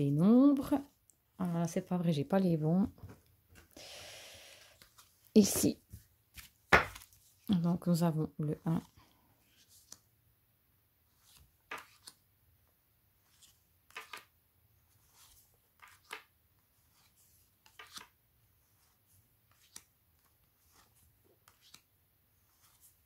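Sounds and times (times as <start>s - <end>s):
cards tapping and sliding: 4.8s - 7.2s, 11.2s - 12.2s, 13.3s - 14.4s, 15.0s - 21.9s.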